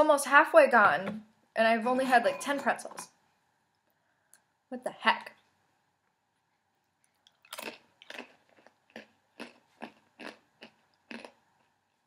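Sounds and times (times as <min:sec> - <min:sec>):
crunchy pretzels being chewed: 0:07.0 - 0:12.0.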